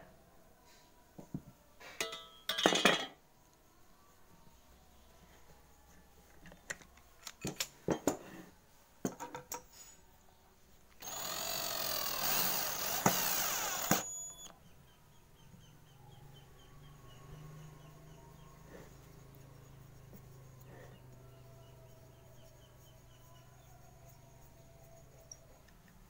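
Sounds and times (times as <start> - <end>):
clicks and knocks of tools: 6.3 - 8.2
cordless drill running: 11.0 - 14.5.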